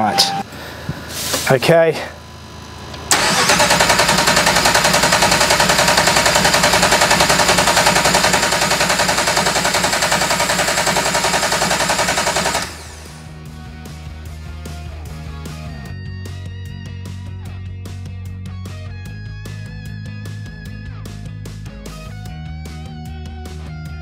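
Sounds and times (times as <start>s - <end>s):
starter motor cranking engine: 3.0s - 13.3s.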